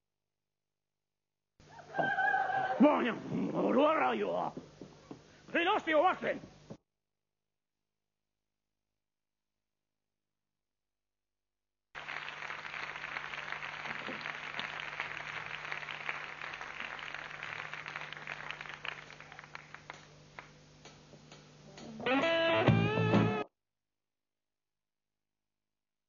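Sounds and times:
guitar music: 21.8 - 23.5.

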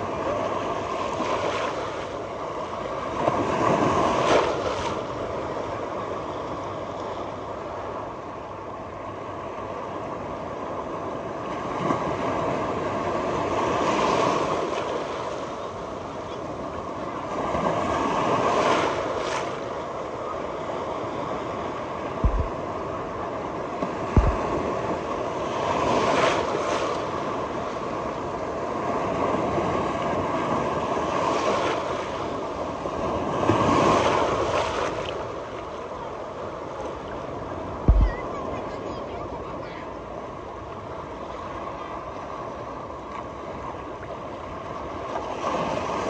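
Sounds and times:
waves washing onto a beach: 0.0 - 46.0.

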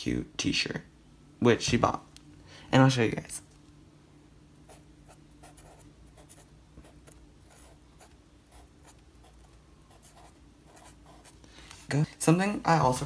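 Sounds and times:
low steady hum: 0.0 - 13.0
marker scratching on paper: 4.7 - 11.4.

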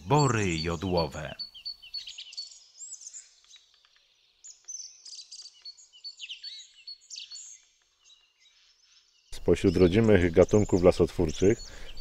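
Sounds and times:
songbirds singing: 0.0 - 12.0.

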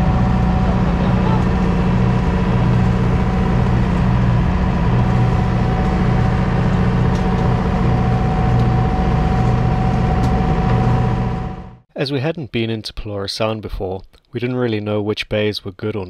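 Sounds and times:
boat engine droning: 0.0 - 11.8.

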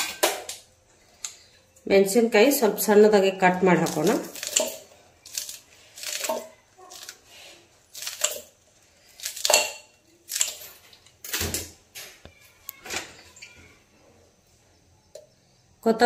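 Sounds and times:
scissors snipping chillies: 3.8 - 7.2.

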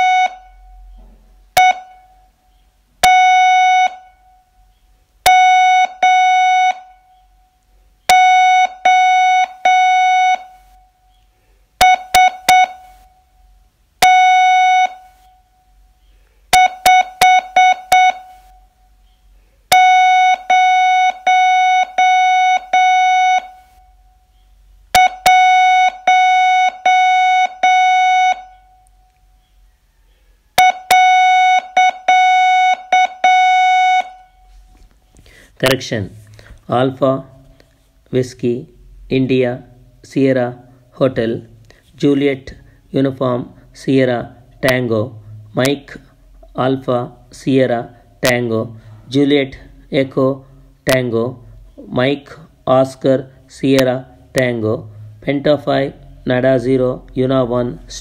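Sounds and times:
morse code tone: 0.0 - 1.0, 1.6 - 2.3, 3.0 - 4.4, 5.3 - 7.3, 8.1 - 11.0, 11.8 - 13.3, 14.0 - 15.5, 16.5 - 18.8, 19.7 - 24.1, 24.9 - 28.9, 30.6 - 34.6, 43.5 - 46.5, 53.8 - 58.0.

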